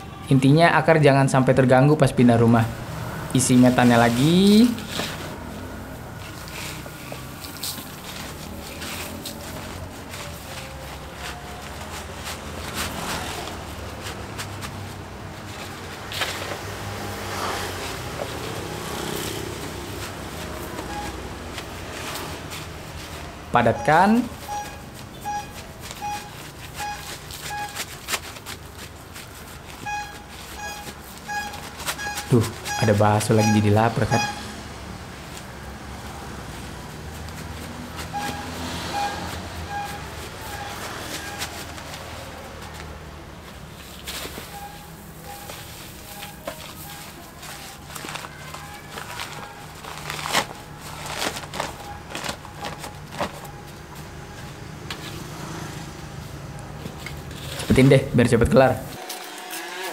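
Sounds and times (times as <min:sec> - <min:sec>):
potting mix crunching: 0:03.5 - 0:24.3, 0:40.3 - 0:53.6
vendor call signal tone: 0:23.6 - 0:27.9, 0:29.8 - 0:34.6, 0:38.1 - 0:41.6, 0:44.5 - 0:49.8.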